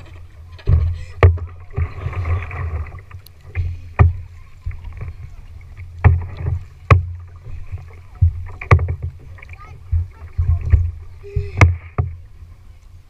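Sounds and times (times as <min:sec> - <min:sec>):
low thumps on plastic hull: 0:00.0 - 0:12.5
paddle splashing water: 0:00.0 - 0:13.0
sharp knocks: 0:06.0 - 0:07.3.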